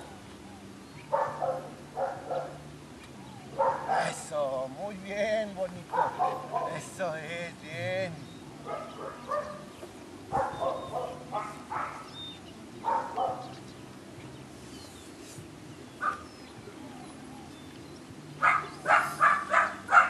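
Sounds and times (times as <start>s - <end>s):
dog barking: 1.1s - 2.6s, 3.5s - 4.2s, 5.9s - 6.9s, 8.6s - 9.7s, 10.3s - 12.2s, 12.8s - 13.6s, 16.0s - 16.3s, 18.4s - 20.0s.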